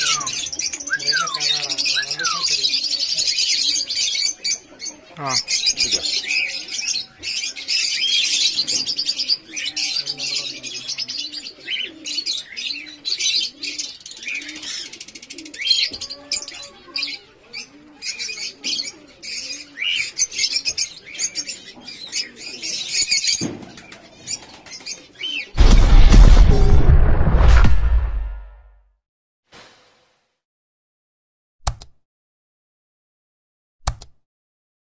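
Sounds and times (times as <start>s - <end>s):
birds chirping and twittering: 0.0s - 26.8s
dove cooing: 5.7s - 22.9s
whoosh sound effect: 25.6s - 28.7s.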